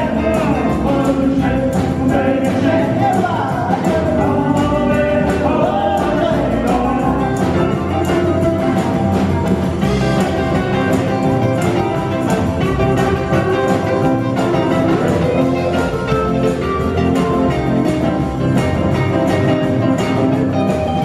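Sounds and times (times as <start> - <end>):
live rock and roll band: 0.0 - 21.0.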